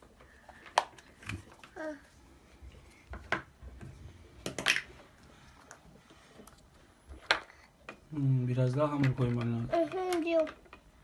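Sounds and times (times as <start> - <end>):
plastic toy pieces clicking: 9.0 - 10.9.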